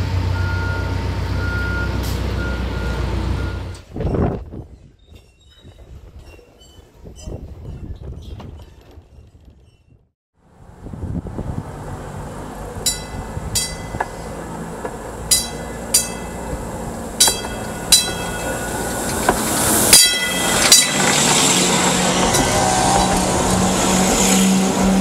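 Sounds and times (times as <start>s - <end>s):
streetcar rumble: 0.0s - 5.0s, 10.4s - 25.0s
wheels clicking over rail joints: 3.7s - 10.0s, 12.6s - 25.0s.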